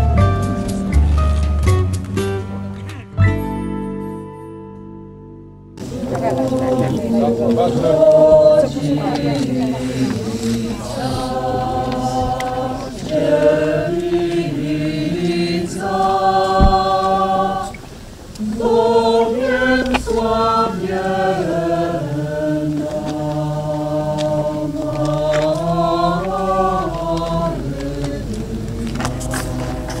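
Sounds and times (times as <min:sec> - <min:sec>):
choir singing a slow hymn: 0:05.8 - 0:30.0.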